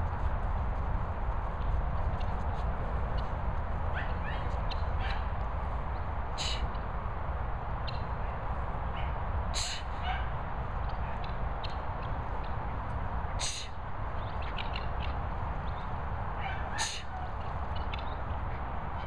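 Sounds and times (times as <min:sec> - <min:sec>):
steady low rumble: 0:00.0 - 0:19.0.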